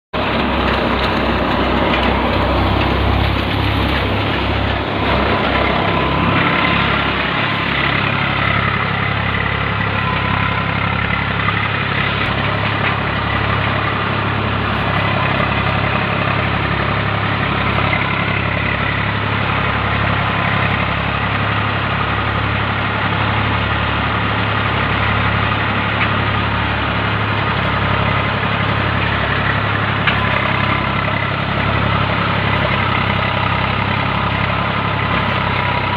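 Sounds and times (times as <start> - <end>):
tractor engine running: 0.1 - 35.9
thresher machine tones: 0.2 - 23.6.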